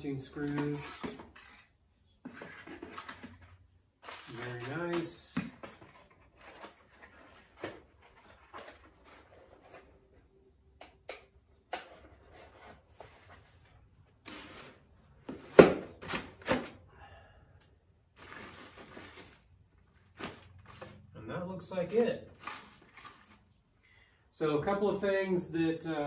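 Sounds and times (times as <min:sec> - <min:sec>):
cardboard and plastic rustling: 0:00.3 - 0:10.4, 0:11.9 - 0:16.8, 0:18.2 - 0:21.2, 0:21.8 - 0:23.8.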